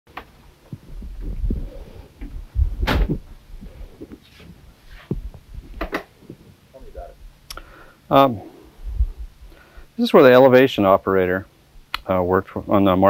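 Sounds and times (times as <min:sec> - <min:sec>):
footsteps and clunks: 0:02.2 - 0:06.6.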